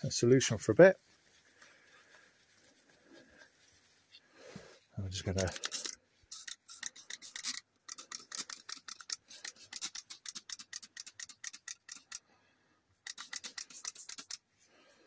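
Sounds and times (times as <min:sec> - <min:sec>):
spray bottle hissing squirts: 0:05.4 - 0:11.0, 0:13.0 - 0:14.4.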